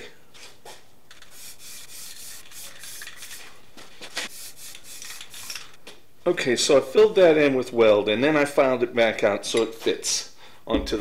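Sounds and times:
spray paint can hissing: 1.2 - 3.5, 4.2 - 5.6.

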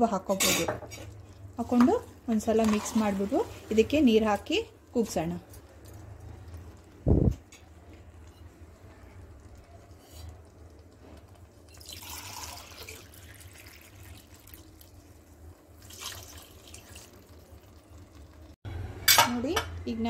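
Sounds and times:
water pouring into pot: 9.0 - 18.6.

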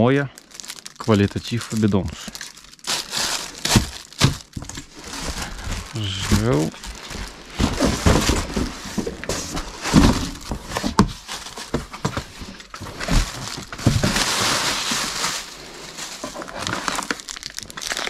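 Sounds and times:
cardboard rustling and scraping: 2.9 - 17.3.

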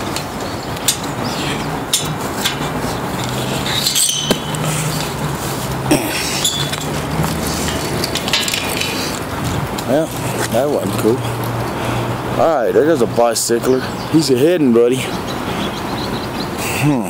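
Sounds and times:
road traffic with engine hum: 0.0 - 17.0
sharp clicks and clinks: 1.9 - 5.2, 6.4 - 9.9.

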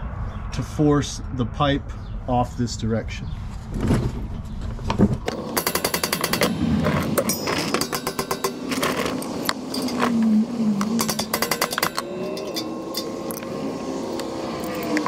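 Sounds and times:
metal-on-metal hammering: 5.5 - 10.1, 10.8 - 13.4.

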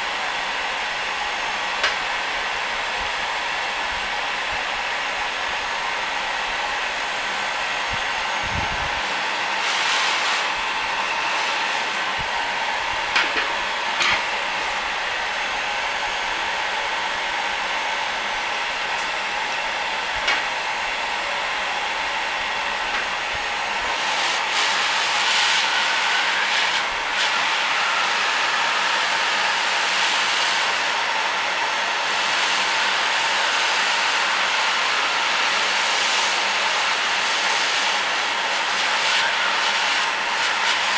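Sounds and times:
heat gun blowing hot air: 0.0 - 40.9.

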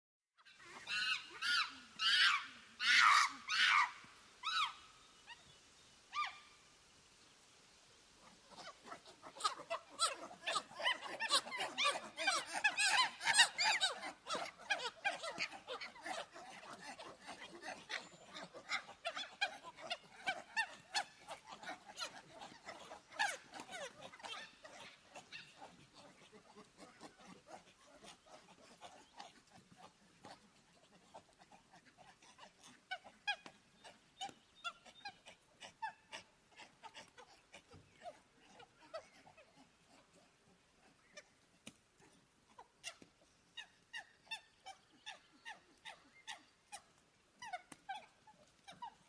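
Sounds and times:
monkey cries: 0.7 - 4.8, 8.5 - 29.3.

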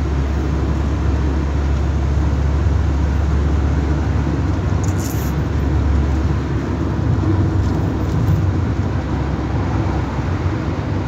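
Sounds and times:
car cabin road and engine rumble: 0.0 - 11.0.

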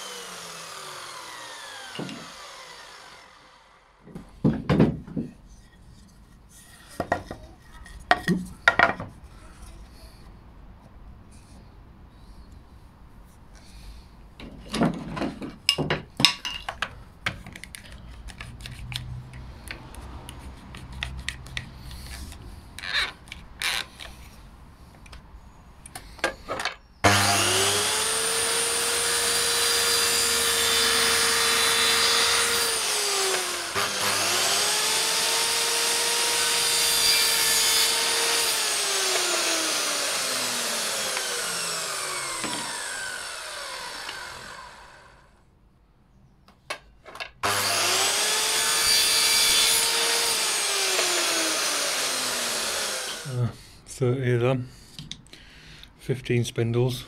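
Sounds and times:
mitre saw motor whining: 0.0 - 4.0, 27.0 - 45.3, 47.4 - 53.4.

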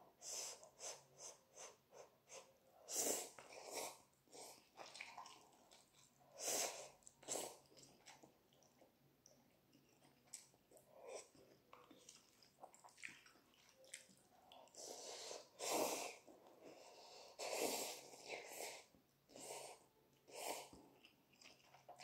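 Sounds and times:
quiet chewing: 1.6 - 22.0
noodles slurped: 3.0 - 8.7.

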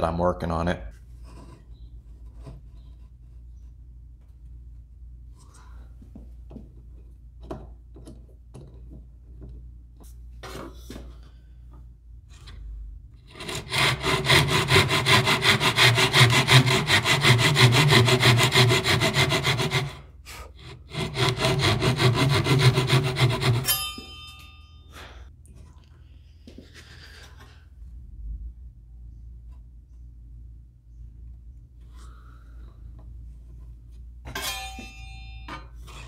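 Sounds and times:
hand saw cutting wood: 13.3 - 23.8
metallic ring of saw blade: 23.5 - 25.0, 34.2 - 36.0.

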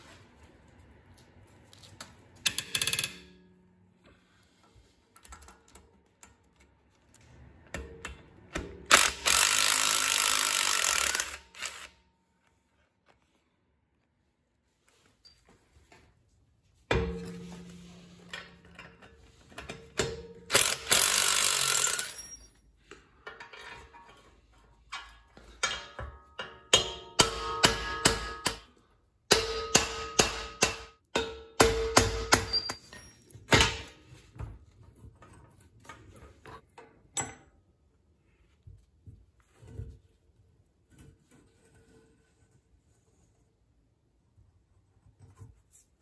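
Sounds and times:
hammer strikes on metal: 25.6 - 32.9.

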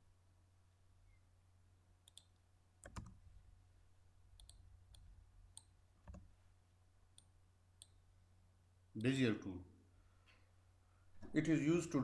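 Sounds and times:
computer mouse clicks: 2.0 - 3.2, 4.4 - 6.3.

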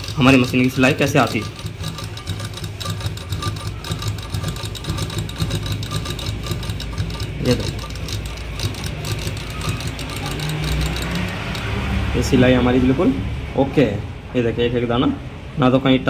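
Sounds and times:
sewing machine running: 0.0 - 12.5.

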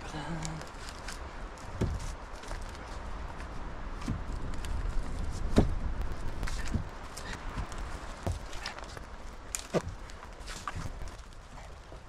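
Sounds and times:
footsteps on forest floor: 0.0 - 12.0
wooden poles knocking: 3.9 - 8.9, 9.5 - 11.2.

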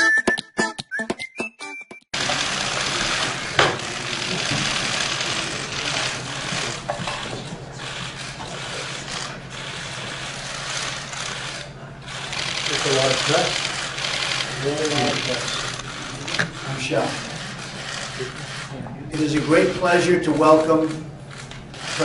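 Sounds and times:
whistling intro music: 0.0 - 2.1.

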